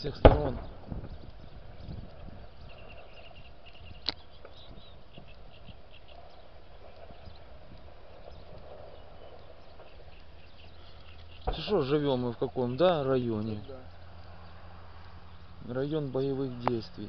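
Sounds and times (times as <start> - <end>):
sharp crack: 0.0 - 1.4, 11.0 - 12.4.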